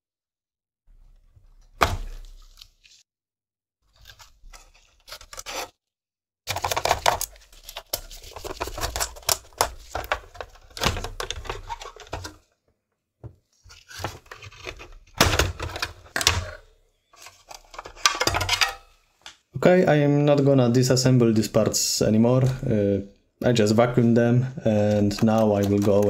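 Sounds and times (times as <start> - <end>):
plastic and metal parts clattering: 6.5 - 12.5, 13.7 - 18.9, 24.7 - 26.0.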